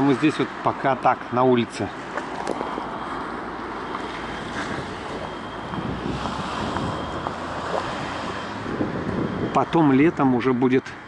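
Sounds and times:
street traffic: 0.0s - 11.0s
wind buffeting microphone: 4.1s - 9.8s.

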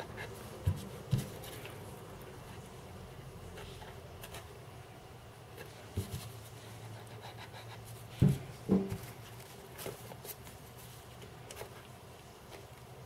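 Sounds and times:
soft thumps: 8.2s - 9.1s.

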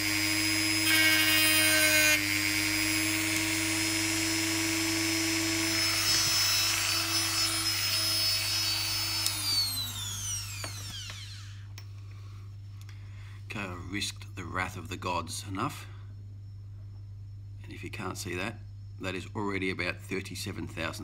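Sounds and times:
rotary tool grinding metal: 0.0s - 11.6s.

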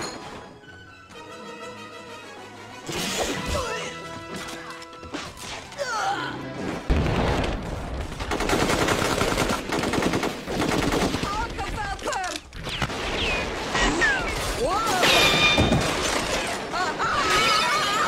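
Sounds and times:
dramatic music with sweeping glides: 0.0s - 7.0s
rapid automatic gunfire: 8.1s - 11.5s.

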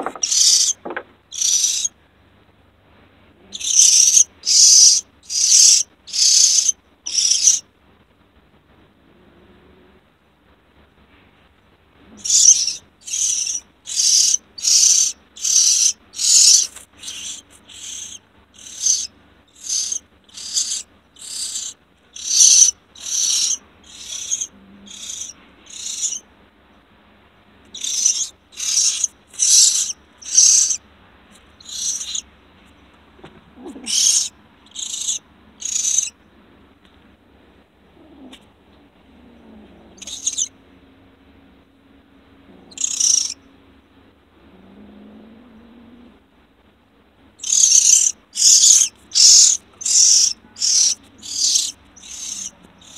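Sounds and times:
baby bird distress cries: 0.0s - 1.9s, 3.5s - 7.6s, 12.2s - 26.2s, 27.7s - 30.8s, 31.6s - 32.2s, 33.6s - 36.1s, 40.0s - 40.5s, 42.6s - 43.4s, 47.4s - 52.9s.

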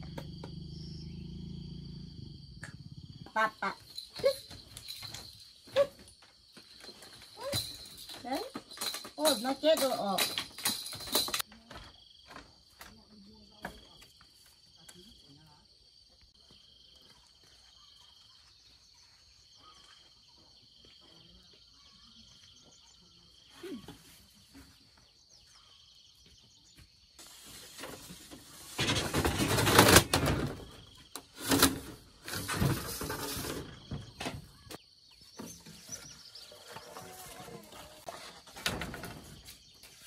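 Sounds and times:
faint chirps: 0.0s - 5.9s, 17.0s - 27.9s
insects chirring: 0.0s - 40.0s.

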